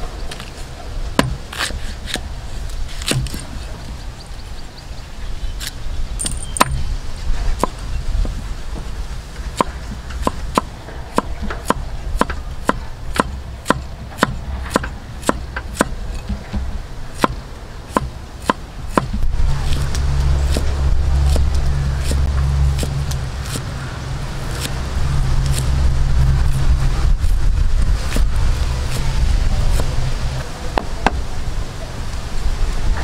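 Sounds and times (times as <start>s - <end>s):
low rumble: 0.0s - 33.0s
cleaver chopping on wooden board: 1.2s - 2.2s, 3.0s - 3.4s, 9.6s - 22.2s.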